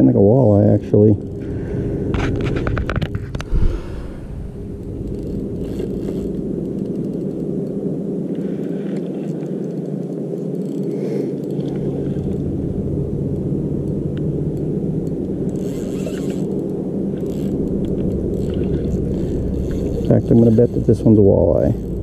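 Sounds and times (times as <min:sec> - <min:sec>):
small motor humming: 0:04.2 - 0:22.0.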